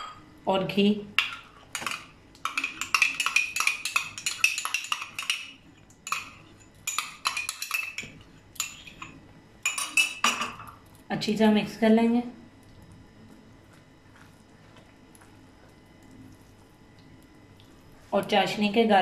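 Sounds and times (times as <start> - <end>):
spoon clinking against a cup: 1.2 - 10.7.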